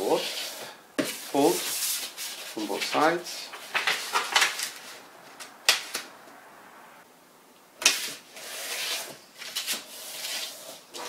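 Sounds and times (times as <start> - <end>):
paper rustling and crackling: 1.7 - 6.1.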